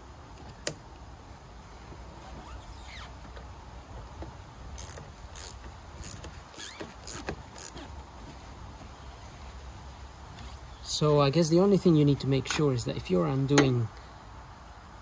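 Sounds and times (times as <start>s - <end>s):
faint rising squeaks: 1.7s - 3.4s, 4.8s - 9.5s
ratchet spanner ratcheting: 4.7s - 7.8s.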